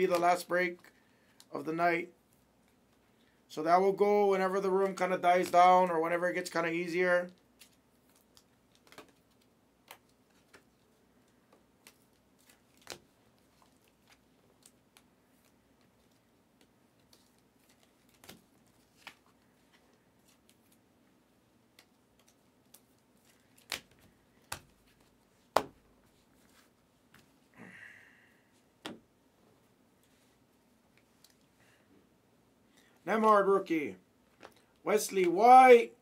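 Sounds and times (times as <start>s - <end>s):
cards clicking and rustling: 7.4s - 20.8s, 21.6s - 27.4s.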